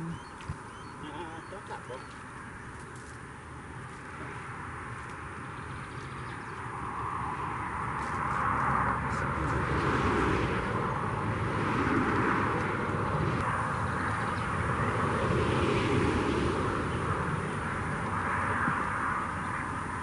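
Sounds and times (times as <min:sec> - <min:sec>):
highway traffic: 0:00.0 - 0:20.0.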